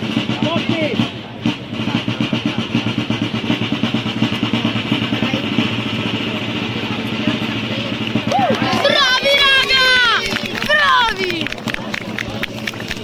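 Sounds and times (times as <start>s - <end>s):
crowd hubbub: 0.0s - 13.0s
drum beaten fast with sticks: 0.0s - 13.0s.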